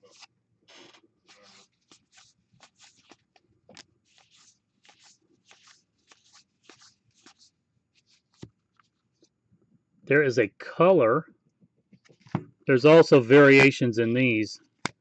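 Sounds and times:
cards sliding swishes: 0.0s - 9.3s.

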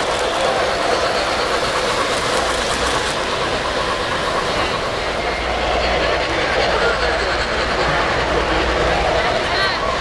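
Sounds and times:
model train wheels rumbling on rails: 0.0s - 10.0s.

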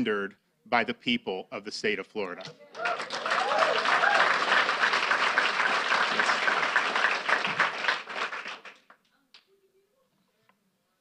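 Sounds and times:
audience applauding: 2.7s - 9.0s.

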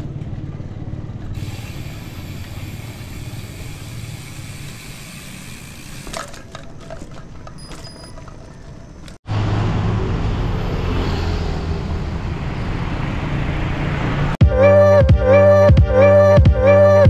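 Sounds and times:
bicycle rolling on concrete: 0.0s - 9.3s
freewheel ratcheting clicks: 1.4s - 9.2s.

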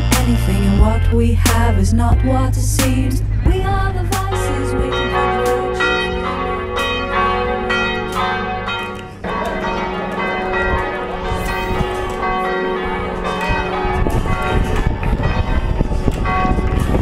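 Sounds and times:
low uneven rumble: 0.5s - 16.1s
church bells ringing: 4.3s - 17.0s.

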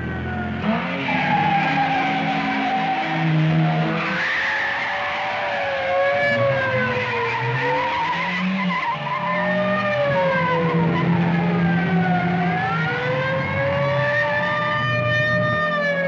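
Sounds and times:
tyres squealing: 0.9s - 5.5s.

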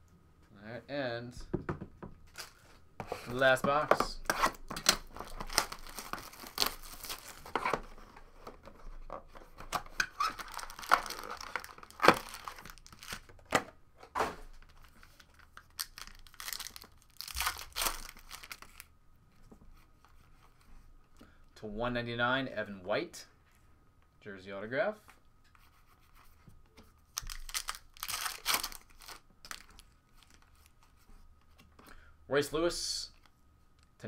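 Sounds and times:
card pack wrappers tearing: 4.4s - 7.8s, 9.6s - 13.4s, 14.7s - 18.9s, 27.1s - 30.5s.

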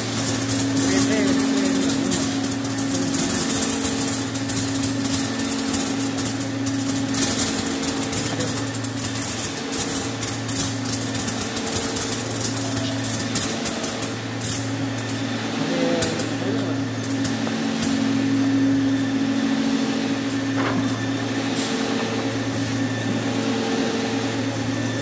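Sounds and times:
rapid clicks and hiss: 0.0s - 15.2s
machine hum: 0.0s - 25.0s.

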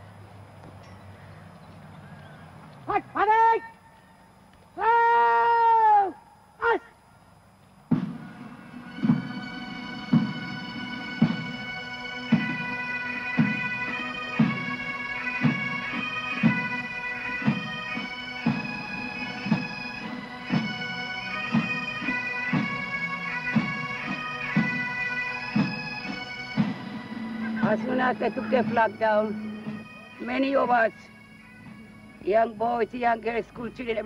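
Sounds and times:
bagpipes playing melody: 7.9s - 34.0s
bass drum beating: 26.6s - 29.9s.

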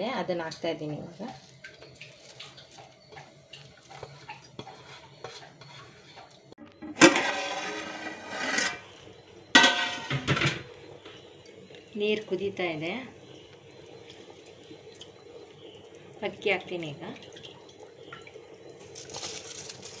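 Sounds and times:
metal scraping on metal: 3.9s - 10.6s
ladle clinking in pot: 9.6s - 10.7s.

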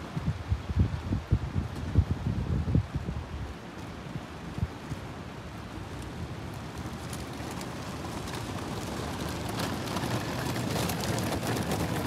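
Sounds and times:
traffic rushing hum: 3.4s - 12.0s.

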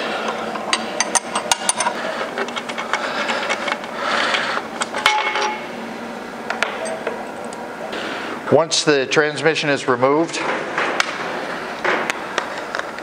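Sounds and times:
hand tools clicking and scraping: 0.2s - 5.6s.

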